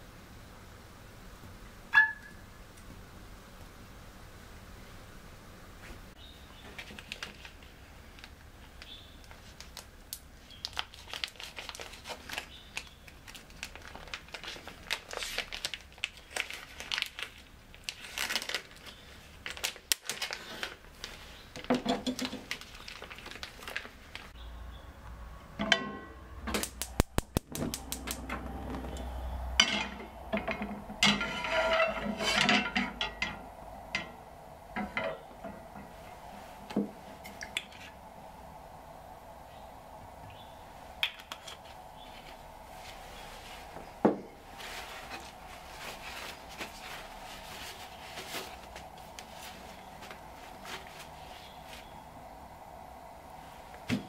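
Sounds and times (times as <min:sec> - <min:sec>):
plastic packaging crinkling and tearing: 0:06.8 - 0:09.9, 0:10.5 - 0:24.4.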